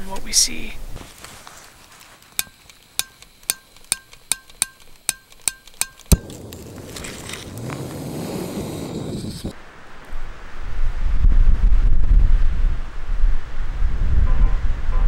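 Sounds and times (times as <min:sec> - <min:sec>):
stove igniter clicking: 0:02.4 - 0:08.2
gas igniting with a pop: 0:06.0 - 0:09.6
steady rushing gas flame: 0:06.1 - 0:10.6.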